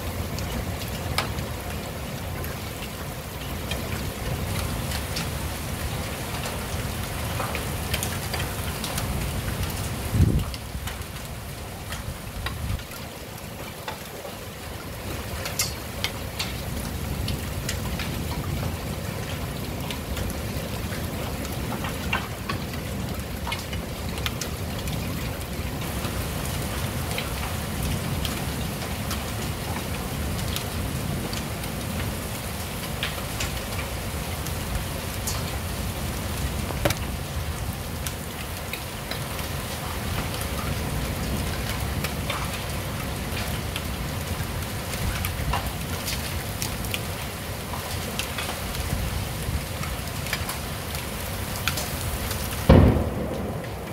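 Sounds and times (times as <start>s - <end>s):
heavy rain falling: 0.0s - 53.9s
raindrops ticking on surfaces: 0.0s - 53.9s.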